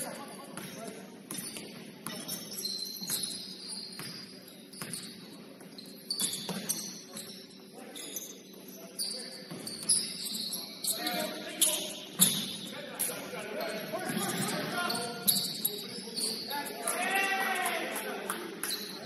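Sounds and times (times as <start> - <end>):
sneakers squeaking on floor: 0.0 - 12.8, 13.6 - 16.9
basketball bouncing: 3.0 - 5.1.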